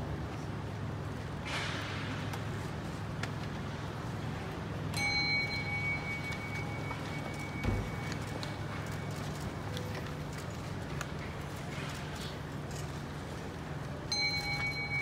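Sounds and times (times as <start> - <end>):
metal bell ringing: 5.0 - 8.0, 14.1 - 15.0.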